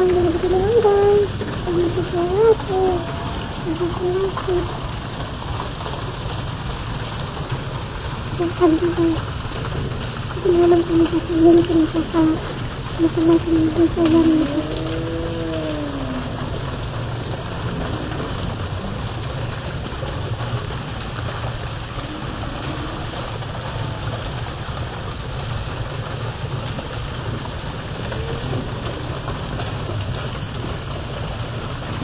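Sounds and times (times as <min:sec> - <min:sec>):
low rumble: 0:00.0 - 0:24.5
water spraying onto pool: 0:00.0 - 0:32.0.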